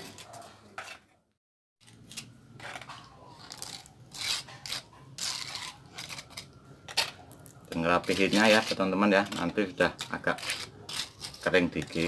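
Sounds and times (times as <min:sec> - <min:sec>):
slurry scraped along a board: 0:07.8 - 0:09.6.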